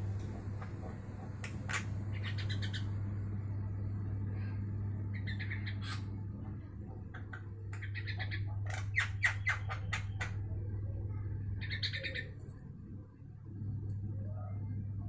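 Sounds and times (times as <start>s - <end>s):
steady low hum: 0.0s - 15.0s
bird chattering squawks: 1.4s - 3.0s, 5.1s - 6.2s, 7.0s - 10.5s, 11.6s - 12.4s.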